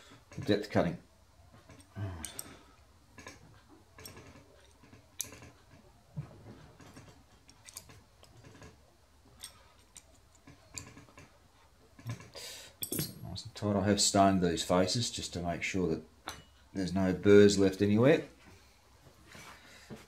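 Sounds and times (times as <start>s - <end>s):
hex key clicking on metal screws: 7.0s - 8.5s, 9.4s - 11.0s.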